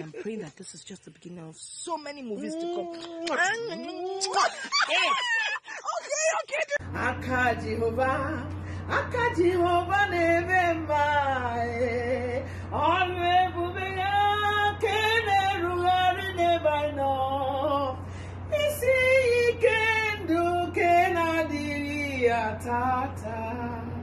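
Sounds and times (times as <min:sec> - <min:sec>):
woman singing unaccompanied: 0:06.8 - 0:24.0.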